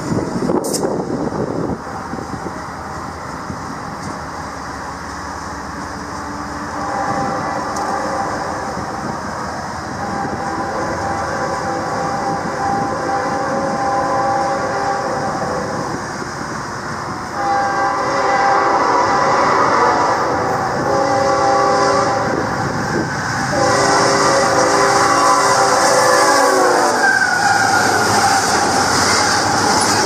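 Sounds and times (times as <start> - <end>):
diesel locomotives rumbling: 0.0 - 30.0
train horn: 6.6 - 9.1, 9.9 - 15.9, 17.3 - 22.5, 23.5 - 29.1.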